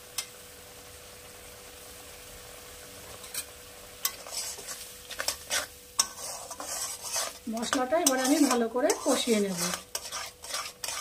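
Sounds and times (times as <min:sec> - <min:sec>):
masala sizzling in a pan: 0:00.0 - 0:11.0
steel spatula scraping a pan: 0:03.2 - 0:11.0.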